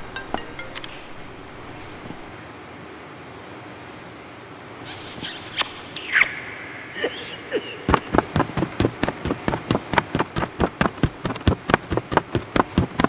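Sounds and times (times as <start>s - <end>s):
fast sharp taps: 7.9s - 13.0s.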